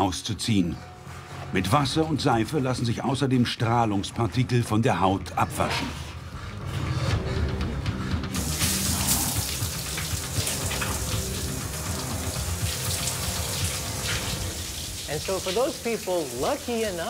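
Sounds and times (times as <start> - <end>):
low background music: 0.0 - 17.0
shower water hissing: 7.8 - 17.0.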